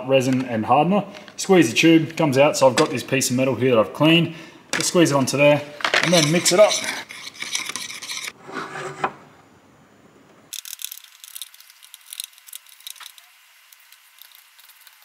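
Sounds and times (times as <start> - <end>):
stick scraping and stirring epoxy: 6.0 - 9.1.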